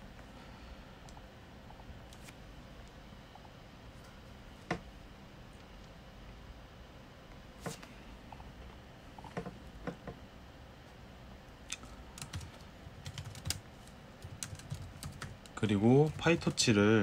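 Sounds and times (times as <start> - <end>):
keyboard typing: 11.7 - 16.6.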